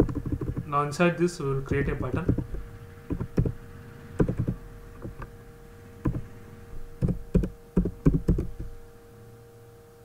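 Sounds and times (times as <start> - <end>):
keyboard typing clicks: 0.0 - 0.7, 2.0 - 3.6, 4.2 - 5.3, 6.0 - 6.3, 7.0 - 8.7
low electrical hum: 0.0 - 10.0.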